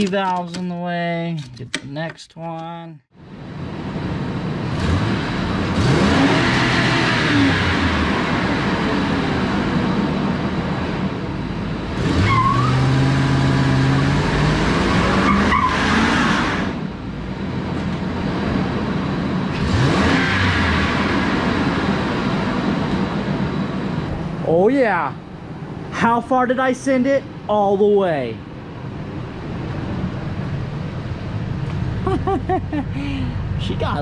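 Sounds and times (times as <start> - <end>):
car engine revving: 3.9 - 17.0, 18.2 - 24.1
tires squealing on concrete: 12.0 - 16.8, 19.6 - 21.8.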